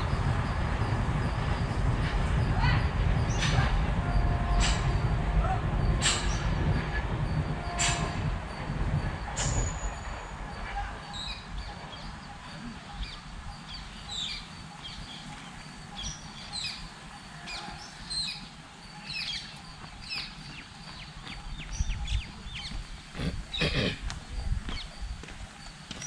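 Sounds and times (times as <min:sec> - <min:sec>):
low rumbling background: 0:00.0 - 0:16.8
small birds chirping: 0:10.5 - 0:26.0
footsteps on dirt path: 0:19.4 - 0:26.0.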